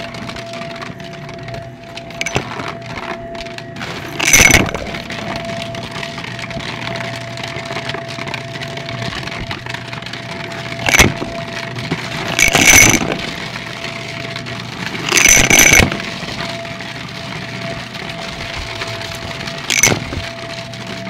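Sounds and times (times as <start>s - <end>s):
coins rattling through vacuum: 3.8s - 5.3s, 10.8s - 13.8s, 15.0s - 16.8s, 18.3s - 20.5s.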